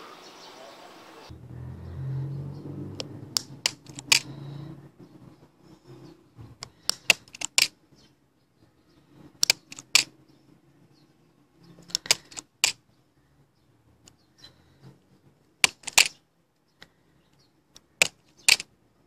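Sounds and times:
plastic toy viewer clicks: 3.0s - 4.3s, 6.6s - 7.8s, 9.4s - 10.1s, 11.8s - 12.8s, 15.6s - 16.2s, 17.7s - 18.7s.

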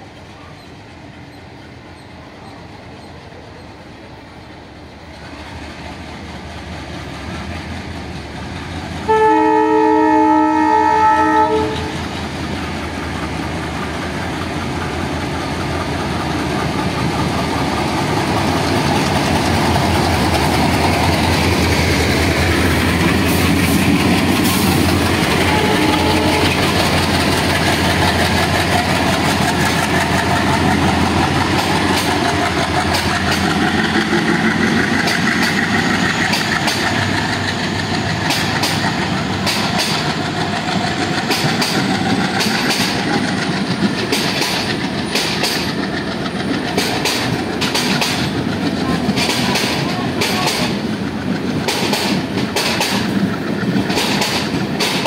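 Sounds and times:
diesel locomotive engines: 0.0s - 55.0s
wheel clicks over rail joints: 41.2s - 48.4s, 53.7s - 55.0s.

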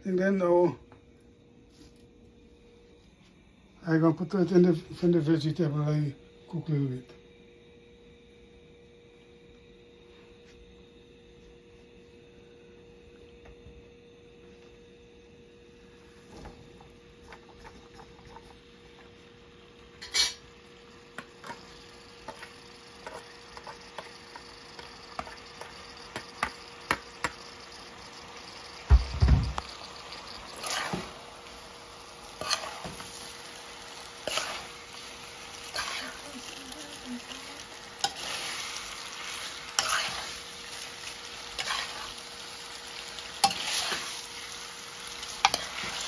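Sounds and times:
faint steady hum: 0.0s - 46.0s
vegetables sizzling: 17.3s - 46.0s.

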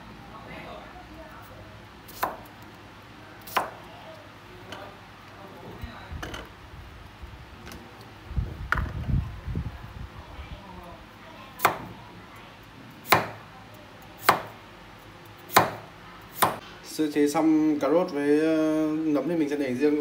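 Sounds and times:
knife chopping on cutting board: 2.1s - 2.4s, 3.5s - 3.8s, 11.6s - 11.9s, 13.0s - 13.4s, 14.2s - 14.6s, 15.5s - 16.6s.

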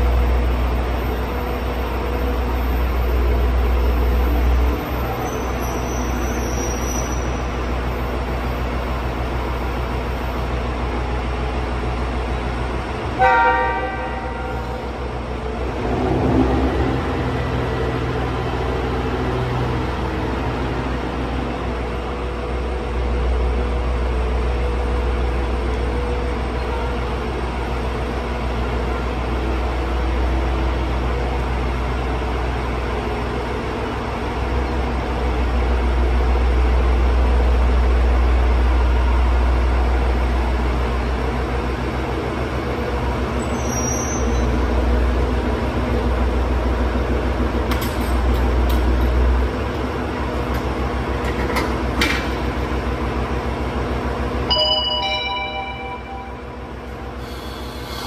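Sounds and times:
railcar engine rumble: 0.0s - 58.0s
short falling chime: 54.5s - 56.4s.

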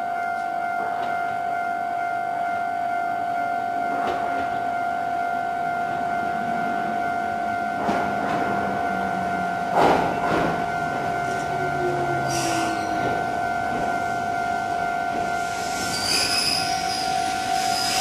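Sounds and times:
steady tone: 0.0s - 18.0s
high wheel squeal: 12.2s - 13.1s, 15.4s - 18.0s.

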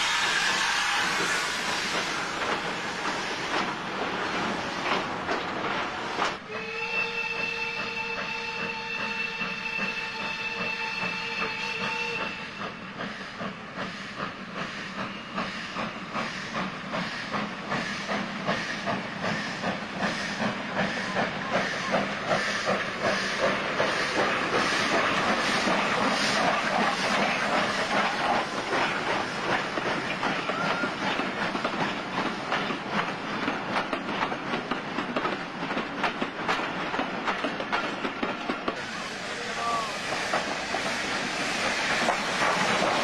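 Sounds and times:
steam locomotive whistle: 0.0s - 2.4s, 6.4s - 13.3s, 30.3s - 31.1s
steam locomotive exhaust beats: 0.0s - 43.0s.

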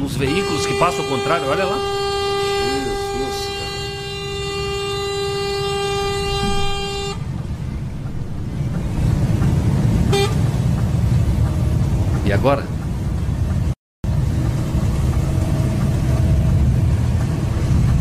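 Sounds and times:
truck horn blast: 0.0s - 7.4s, 10.1s - 10.5s
road noise: 0.0s - 18.0s
truck engine: 0.0s - 18.0s.

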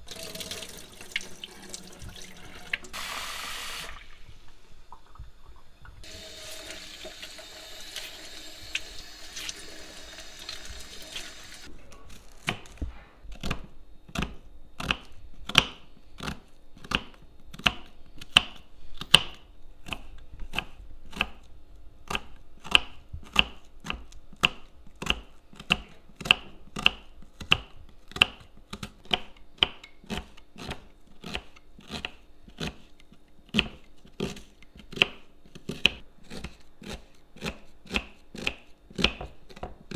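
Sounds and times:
knife slicing onion on wooden board: 12.4s - 39.9s.

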